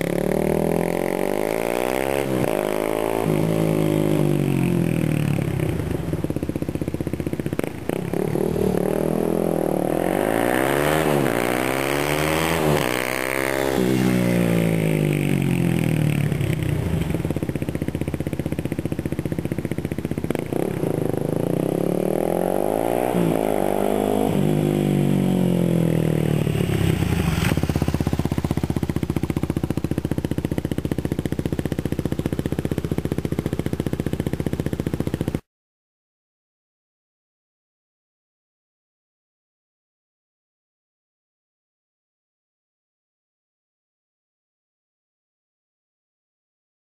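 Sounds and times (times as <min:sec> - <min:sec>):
motorcycle engine revving: 0:00.0 - 0:35.5.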